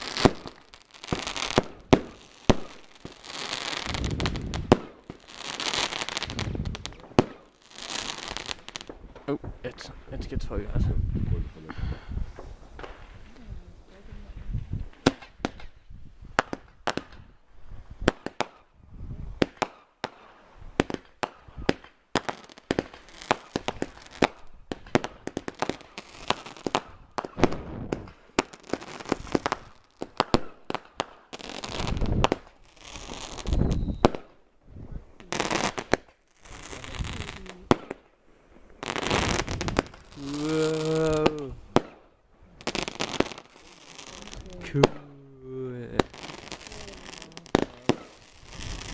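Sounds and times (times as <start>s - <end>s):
firework star bursts crackling: 0.0s - 10.2s, 19.4s - 34.6s, 35.2s - 48.9s
fireworks bangs and pops: 0.0s - 48.9s.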